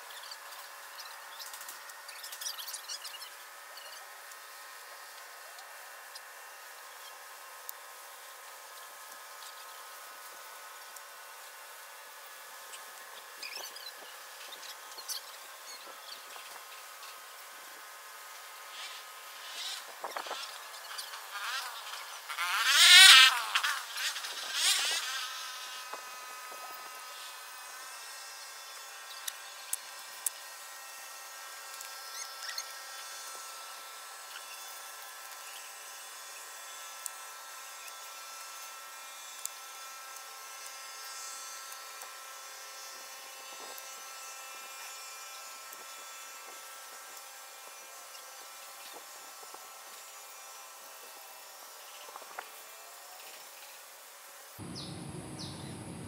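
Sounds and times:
insect buzzing: 0:00.0 - 0:56.0
faint high hum: 0:54.6 - 0:56.0.

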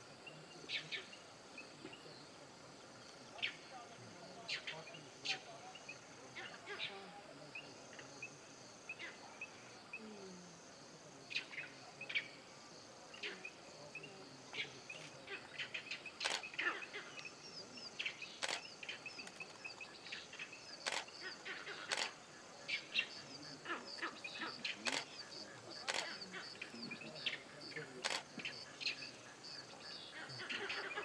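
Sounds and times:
insect drone: 0:00.0 - 0:31.0
birds chirping: 0:11.3 - 0:31.0.

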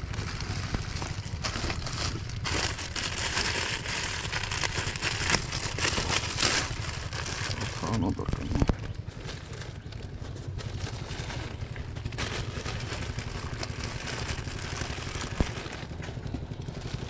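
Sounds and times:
crinkling rustle with clicks: 0:00.0 - 0:17.0
low rumble: 0:00.0 - 0:17.0.

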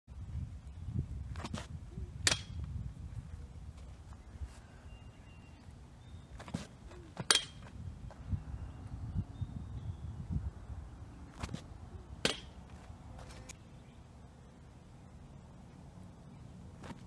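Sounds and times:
low wind rumble: 0:00.1 - 0:16.8
baseball striking target: 0:02.2 - 0:02.7, 0:06.6 - 0:07.7, 0:12.2 - 0:12.7.

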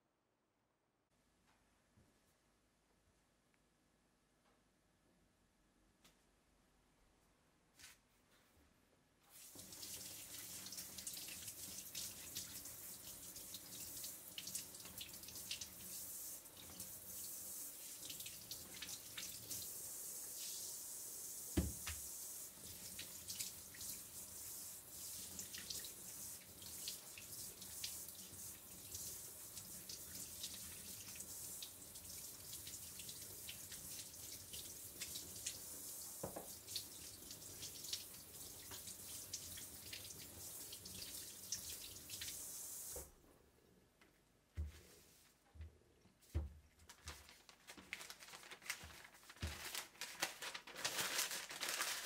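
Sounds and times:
tap water splashing in sink: 0:21.5 - 0:22.1, 0:28.9 - 0:43.1
knock: 0:21.6 - 0:22.0.

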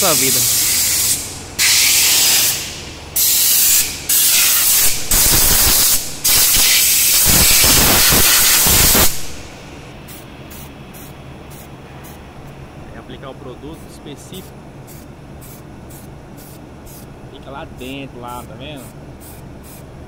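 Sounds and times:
air blow gun hissing blasts: 0:00.0 - 0:09.5.

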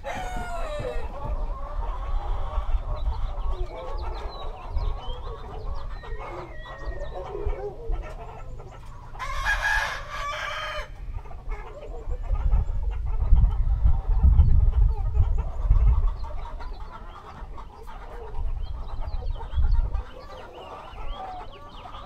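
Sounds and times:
rooster crowing: 0:00.0 - 0:01.2, 0:09.2 - 0:10.9
chickens clucking: 0:00.0 - 0:22.0.

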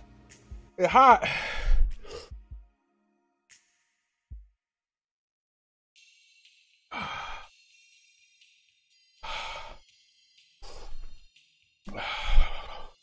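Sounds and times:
man exhaling hard: 0:01.2 - 0:02.3, 0:11.9 - 0:13.0.

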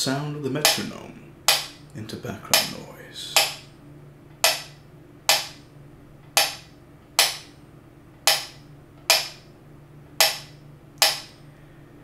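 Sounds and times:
metronome ticking: 0:00.6 - 0:01.8, 0:02.5 - 0:03.7, 0:04.4 - 0:05.6, 0:06.4 - 0:07.5, 0:08.3 - 0:09.4, 0:10.2 - 0:11.3.

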